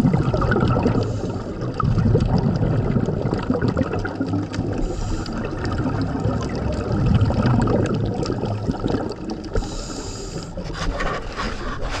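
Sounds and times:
underwater exhaled bubbles burbling: 0.0s - 11.0s
breath hissing through regulator: 0.8s - 1.7s, 4.7s - 5.6s, 9.5s - 11.0s.

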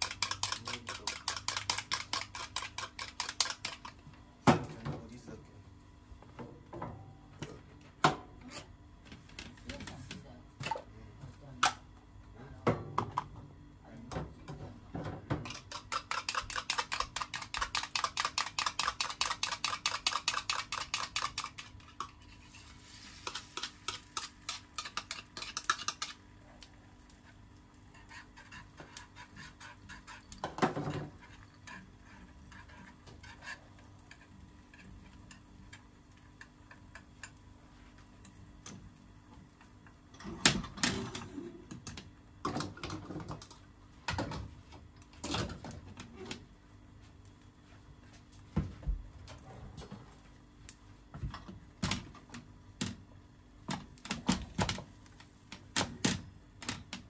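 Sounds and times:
whisk clinking in frying pan: 0.0s - 3.9s, 15.4s - 22.1s, 23.2s - 26.2s
whisk beating eggs in bowl: 0.0s - 4.1s, 15.4s - 38.4s.

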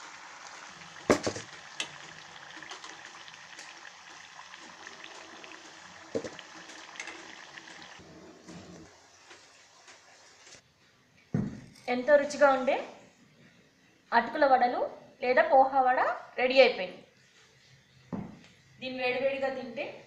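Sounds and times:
food sizzling in hot oil: 0.0s - 10.6s.

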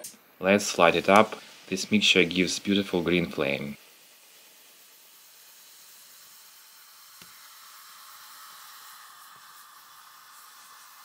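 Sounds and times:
mixture burning with steady hiss: 0.0s - 11.0s.

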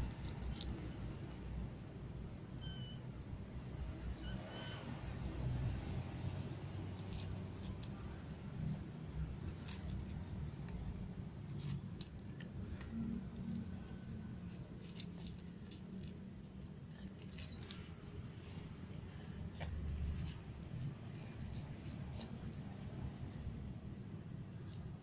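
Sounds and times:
cats crunching dry kibble: 6.9s - 13.6s, 14.2s - 22.5s.

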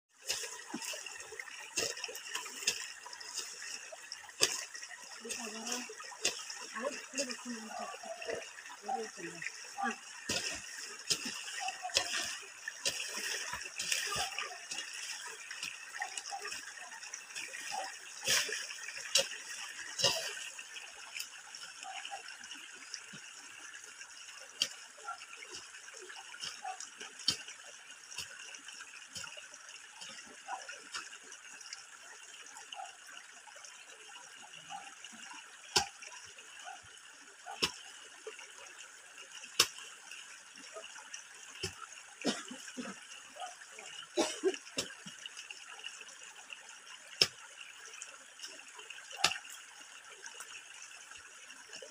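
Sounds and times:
running water: 0.1s - 51.9s.

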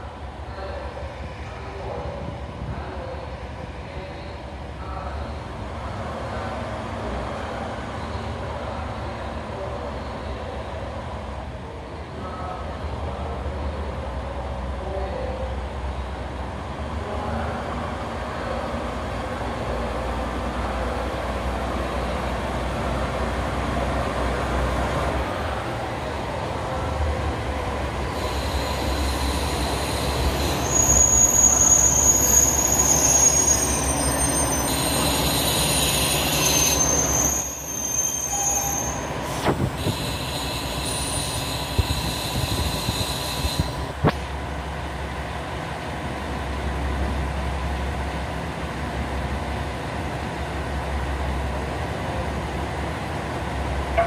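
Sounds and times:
diesel train engine rumbling: 0.0s - 54.0s
wheel and brake squeal: 28.2s - 43.8s.

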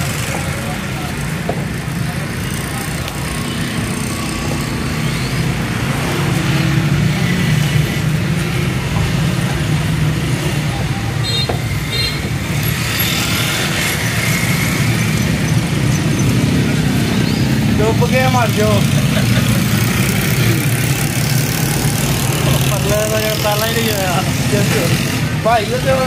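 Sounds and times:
street noise: 0.0s - 26.0s.

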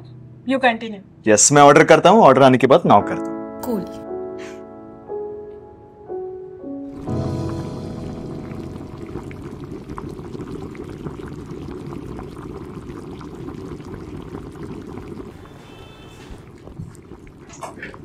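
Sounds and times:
water boiling in a pot: 7.0s - 18.0s.

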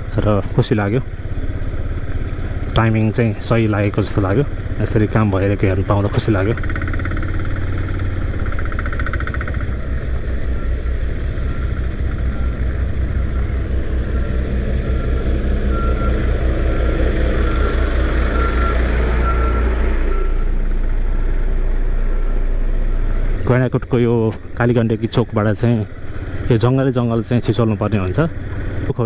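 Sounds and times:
engine rumbling: 0.0s - 29.0s
reversing alarm beeping: 10.5s - 23.2s.

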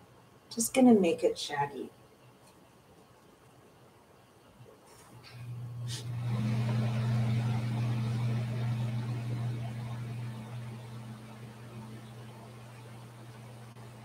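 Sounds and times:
low motor hum: 5.3s - 14.0s.

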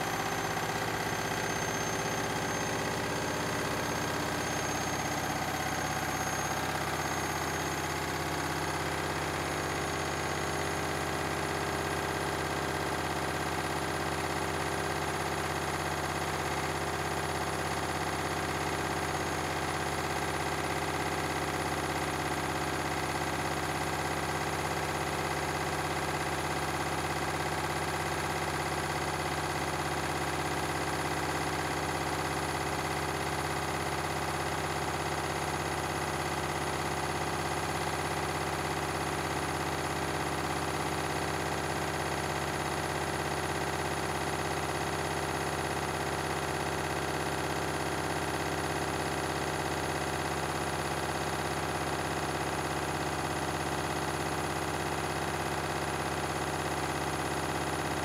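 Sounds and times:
high motor whine: 0.0s - 8.1s
washing machine spinning: 0.0s - 10.6s.

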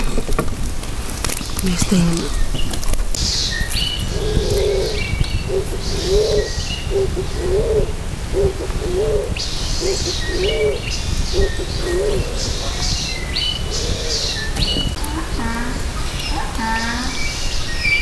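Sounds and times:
dove cooing: 4.0s - 17.2s.

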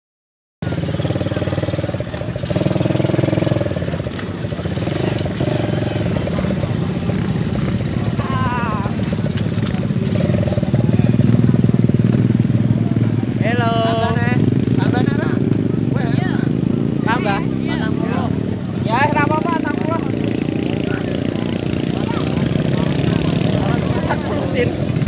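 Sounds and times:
quad bike engine revving: 0.6s - 25.0s.

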